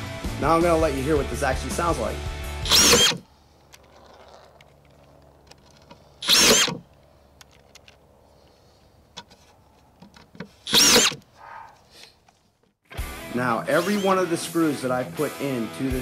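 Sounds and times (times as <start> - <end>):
screw gun motor whir: 2.6 - 3.3, 6.2 - 6.8, 10.6 - 11.2, 13.7 - 14.2.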